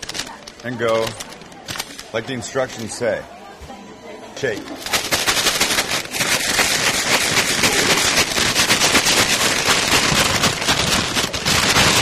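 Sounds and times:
paper bag shaken hard: 0:00.0 - 0:02.8, 0:04.6 - 0:12.0.

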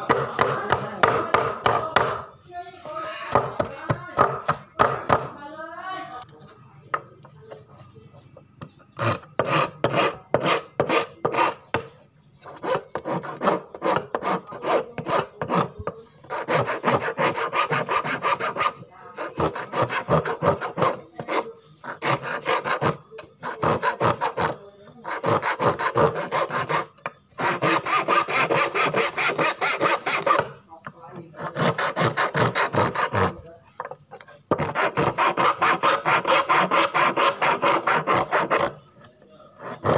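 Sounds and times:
metal file rasping on wood: 0:08.6 - 0:39.9.

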